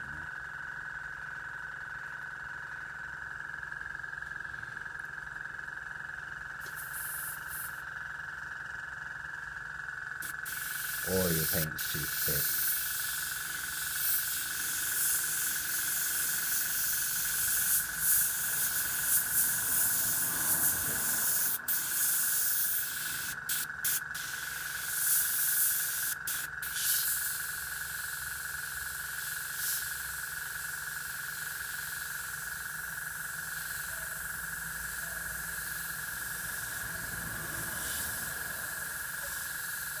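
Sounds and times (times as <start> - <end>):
airbrush hissing: 6.6 - 7.8, 10.2 - 40.0.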